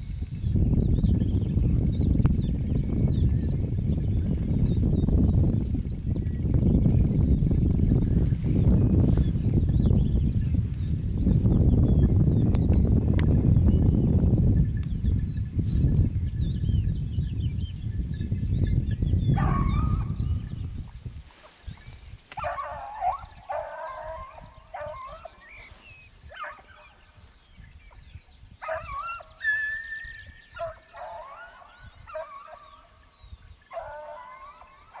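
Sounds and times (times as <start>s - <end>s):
low microphone rumble: 0.0s - 29.0s
hounds baying: 19.3s - 20.5s, 22.3s - 28.0s, 28.6s - 35.0s.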